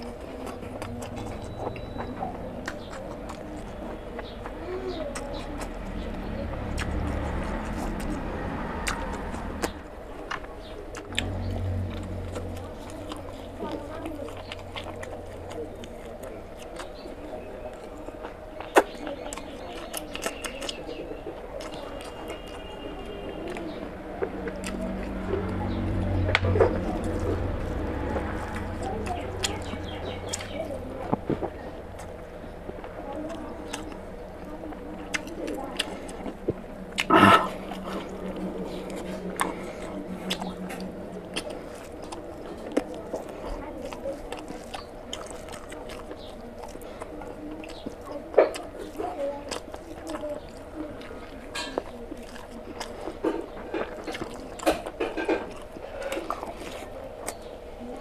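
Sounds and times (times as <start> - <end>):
low hum: 0.0 - 16.4, 23.1 - 45.0
wet chewing and lip smacks: 0.0 - 58.0.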